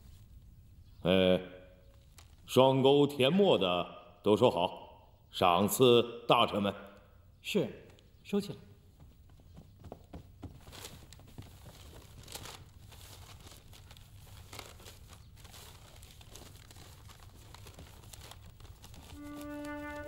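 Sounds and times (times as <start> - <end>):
paper rustling and crinkling: 1.8 - 2.5, 10.1 - 20.0
flute melody: 19.1 - 20.0.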